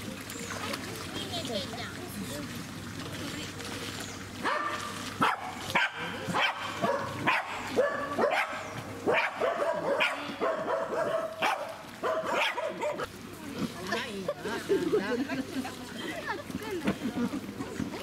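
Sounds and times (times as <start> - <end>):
dog barking sharply: 4.4 - 13.0.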